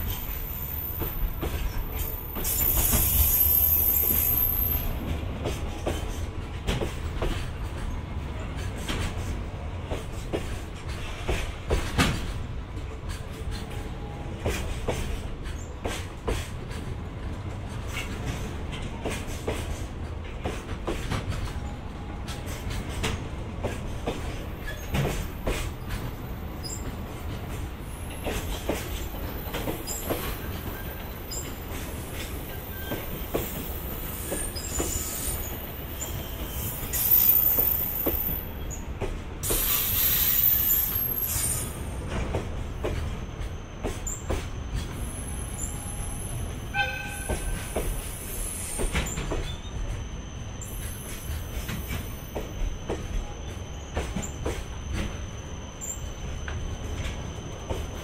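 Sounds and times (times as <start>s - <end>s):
train wheels rumbling: 0.0s - 58.0s.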